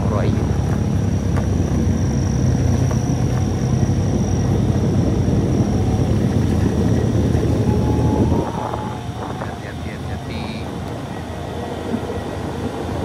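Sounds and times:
motorcycle engine running: 0:00.0 - 0:09.6
road and wind rumble: 0:00.0 - 0:13.0.

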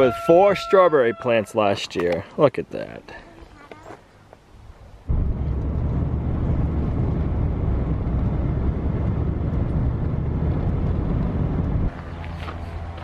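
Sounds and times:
vehicle engine and road rumble: 0:05.0 - 0:13.0.

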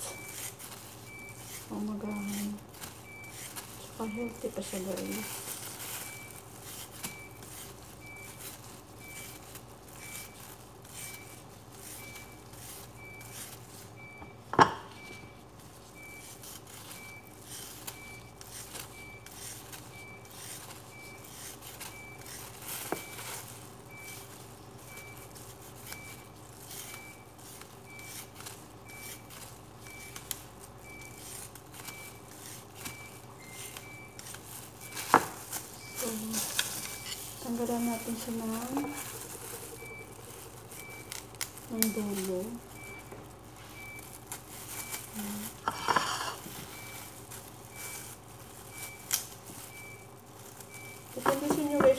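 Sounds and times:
faint high beep: 0:00.0 - 0:00.5, 0:01.1 - 0:05.3, 0:35.8 - 0:44.1
steady low hum: 0:00.0 - 0:51.9.

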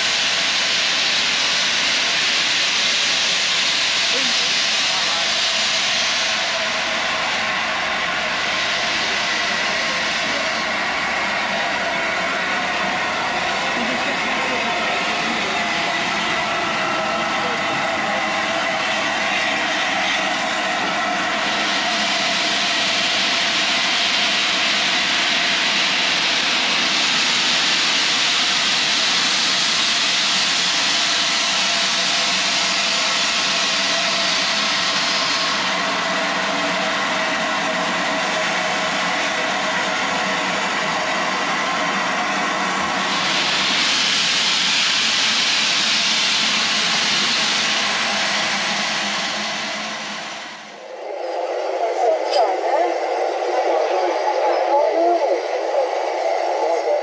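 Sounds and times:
steam locomotive hissing: 0:00.0 - 0:57.0.

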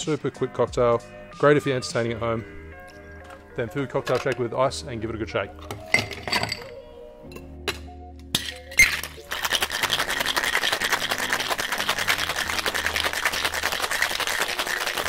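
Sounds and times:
ice rattling in cocktail shaker: 0:08.4 - 0:15.0.

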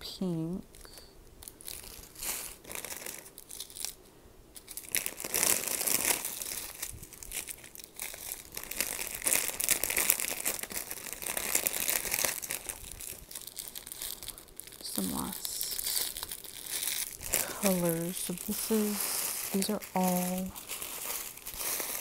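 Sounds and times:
plastic bags crinkling: 0:00.7 - 0:04.0, 0:04.6 - 0:22.0.

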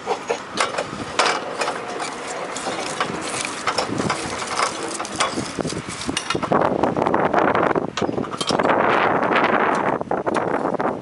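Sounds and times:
rail vehicle wheels rattling: 0:00.0 - 0:07.0.

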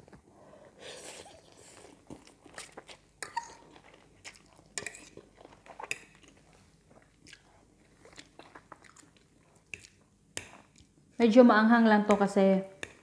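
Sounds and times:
chewing and mouth smacks: 0:01.6 - 0:11.0.

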